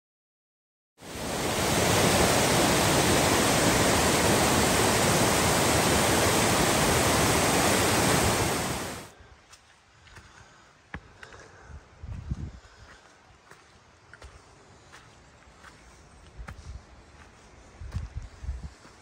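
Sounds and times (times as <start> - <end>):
waterfall rushing: 1.0 - 9.1
faint footsteps on leaves: 9.2 - 11.4, 12.1 - 19.0.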